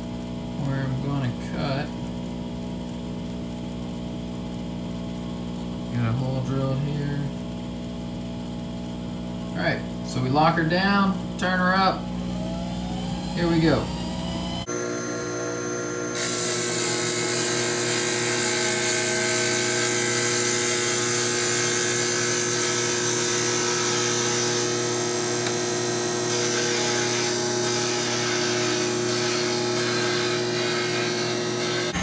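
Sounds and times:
lathe motor whine: 9.6 - 32.0
tool cutting wood hiss: 16.0 - 32.0.

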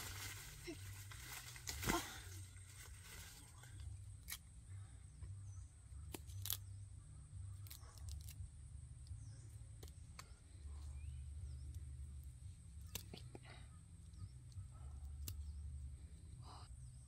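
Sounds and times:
seed pod snapping open: 4.2 - 4.5, 6.0 - 6.8, 7.6 - 10.4, 12.8 - 13.2, 15.2 - 15.6
faint bird chirps: 4.5 - 8.3, 8.9 - 17.0.

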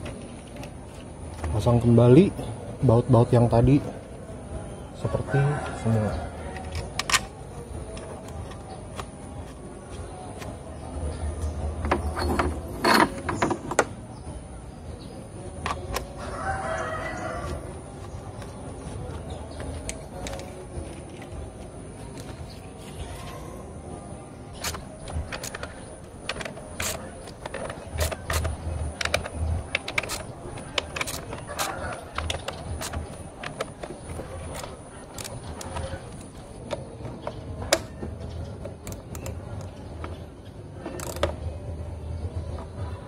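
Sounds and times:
plastic clatter of parts handled: 24.6 - 38.0
socket wrench clicking: 24.6 - 38.0, 38.6 - 39.8, 41.0 - 41.4.

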